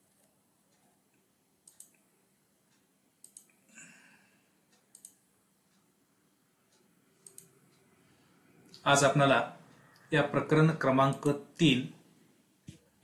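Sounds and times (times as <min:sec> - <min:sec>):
computer mouse clicks: 0:01.6 - 0:02.0, 0:03.2 - 0:03.6, 0:04.7 - 0:05.2, 0:06.7 - 0:07.9, 0:11.0 - 0:11.4.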